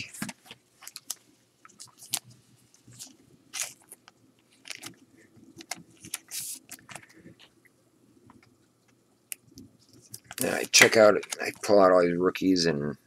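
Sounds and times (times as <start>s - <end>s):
trading cards scraping and flicking: 5.6s - 7.2s.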